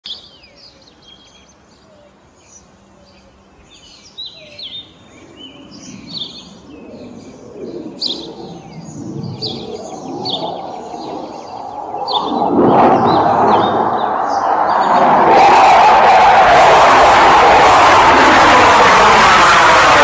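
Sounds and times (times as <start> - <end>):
birds chirping: 0.0 - 15.7
low-flying aircraft rumble: 1.7 - 20.0.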